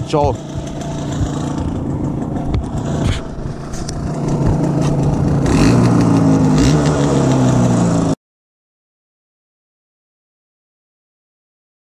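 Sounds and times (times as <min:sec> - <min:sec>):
two-stroke engine revving: 0:00.0 - 0:08.2.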